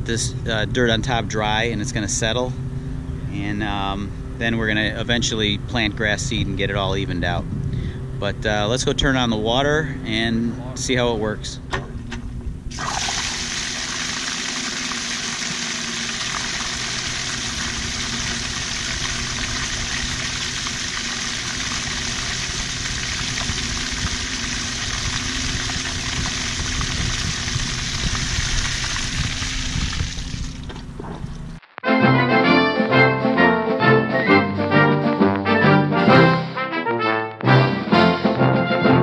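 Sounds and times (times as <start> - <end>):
steady low hum: 0.0 - 31.6
water pouring into drain pipe: 12.7 - 30.8.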